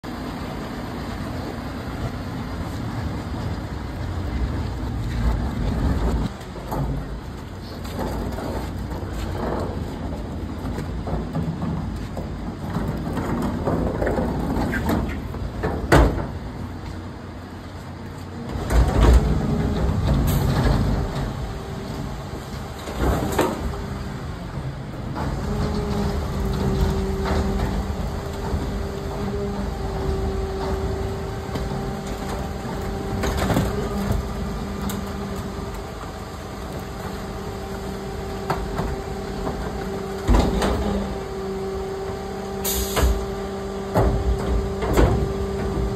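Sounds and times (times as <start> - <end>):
truck engine running: 0.0 - 45.9
hydraulic whine: 18.3 - 45.9.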